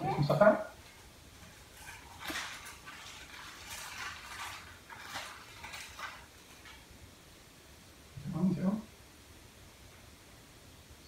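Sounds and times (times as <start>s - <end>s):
plastic packaging crinkling: 0.0s - 7.0s.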